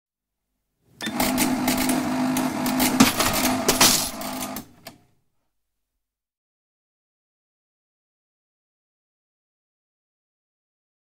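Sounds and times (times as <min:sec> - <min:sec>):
receipt printer buzzing and clicking: 0:01.0 - 0:05.0.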